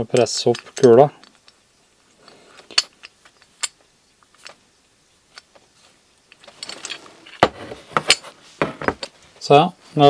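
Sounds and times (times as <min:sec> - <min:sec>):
clicks of metal tool being handled: 0:00.0 - 0:01.6
rustling clatter: 0:05.3 - 0:10.0.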